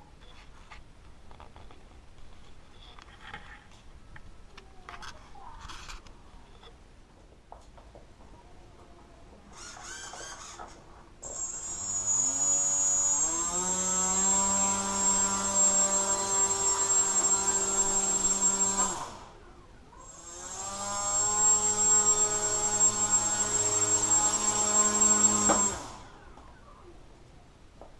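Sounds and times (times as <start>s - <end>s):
electric motor and propeller whine: 9.6s - 19.4s, 20.0s - 26.4s.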